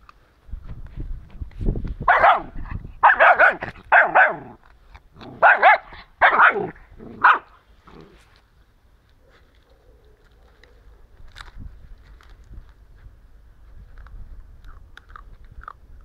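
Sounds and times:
dog yapping: 2.1 - 4.6, 5.4 - 7.5.

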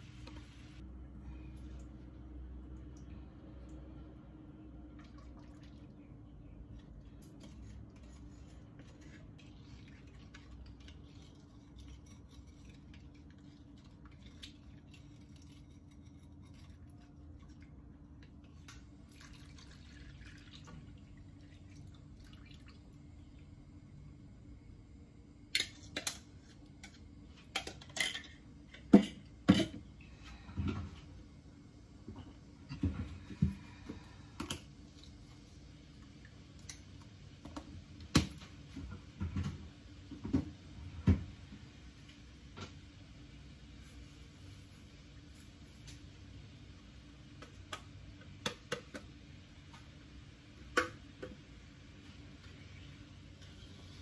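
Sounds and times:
faint liquid pouring: 17.2 - 23.4.

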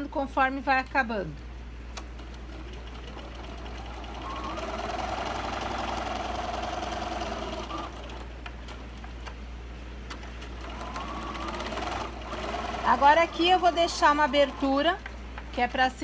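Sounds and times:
sewing machine motor whine: 2.6 - 8.3, 10.5 - 15.0.

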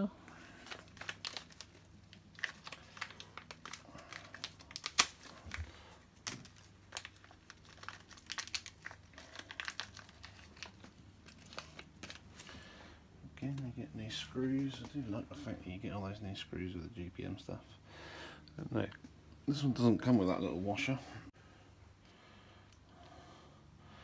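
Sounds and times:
plastic bag crinkling: 0.4 - 12.6.

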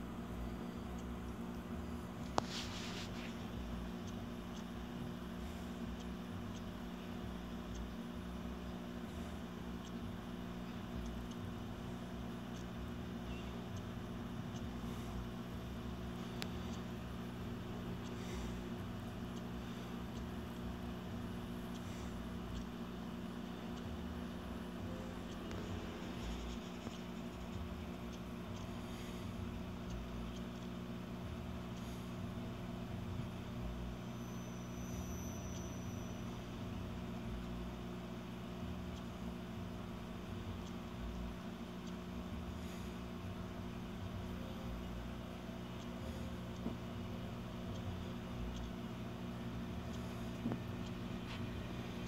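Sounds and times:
faint ticks: 0.0 - 52.0
low electrical hum: 0.0 - 52.0
faint high whistle: 34.0 - 36.6.

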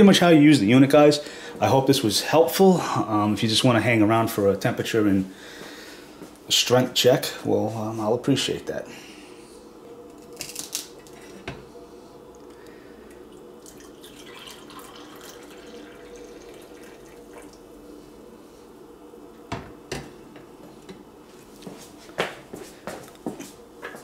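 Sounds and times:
coffee pouring into mug: 13.1 - 17.7.

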